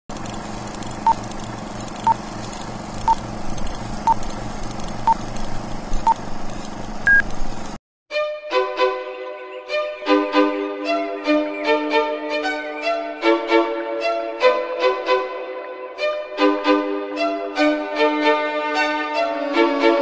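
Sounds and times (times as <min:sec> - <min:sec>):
projector-like rattle and hiss: 0:00.1 - 0:07.8
violin music: 0:08.1 - 0:20.0.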